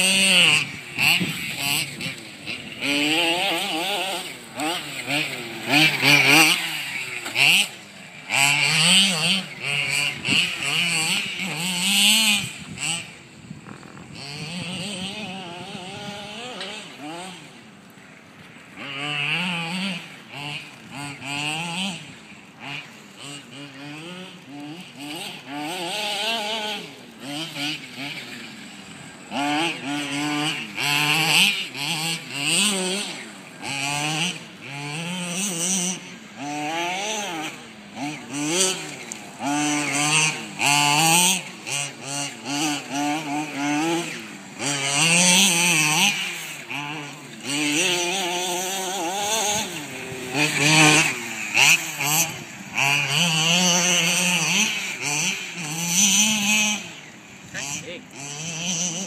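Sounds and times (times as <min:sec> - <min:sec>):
small two-stroke engine revving: 0:00.0 - 0:59.0.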